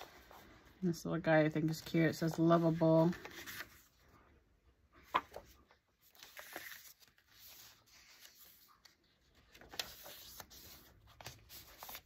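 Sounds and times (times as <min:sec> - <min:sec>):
paper pages rustling: 0:01.5 - 0:04.2, 0:05.0 - 0:12.0
soft taps of pages: 0:05.0 - 0:05.6.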